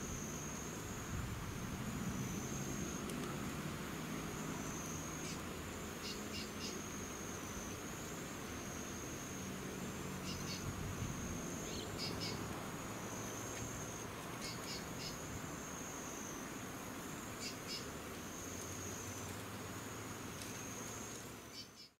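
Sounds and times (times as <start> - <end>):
high-pitched insect trilling: 10.0 - 16.4
bird chirps: 10.2 - 10.7, 11.6 - 12.4, 14.4 - 15.2, 21.5 - 22.0.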